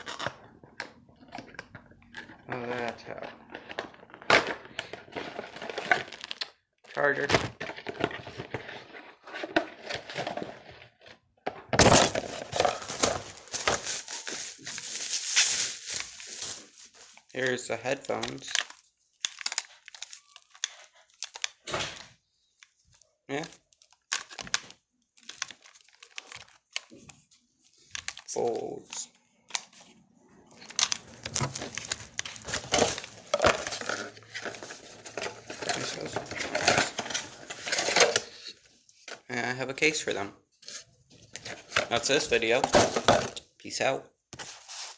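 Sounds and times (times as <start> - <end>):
paper and cardboard rustling: 11.8 - 21.7, 29.5 - 39.2, 44.3 - 44.9
plastic wrap crinkling: 12.0 - 21.7, 22.5 - 28.8, 29.5 - 38.6.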